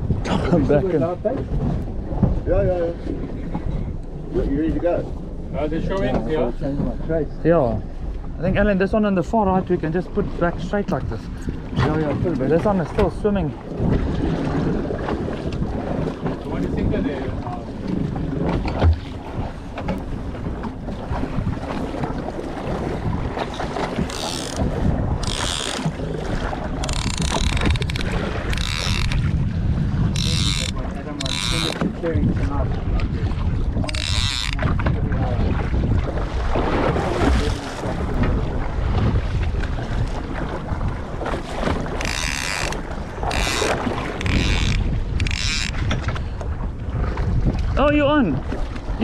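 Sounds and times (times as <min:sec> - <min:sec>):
wind buffeting microphone: 0:00.0 - 0:49.0
fishing reel drag buzzing: 0:24.1 - 0:24.6, 0:25.2 - 0:25.9, 0:26.8 - 0:29.2, 0:30.1 - 0:31.8, 0:33.9 - 0:34.6, 0:42.0 - 0:45.8.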